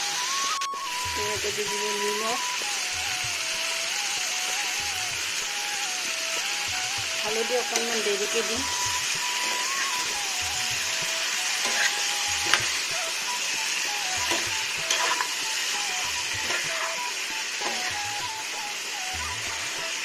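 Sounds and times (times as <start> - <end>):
food sizzling in hot oil: 0.0 - 20.0
spatula tapping and scraping pan: 11.6 - 12.8, 14.3 - 15.3.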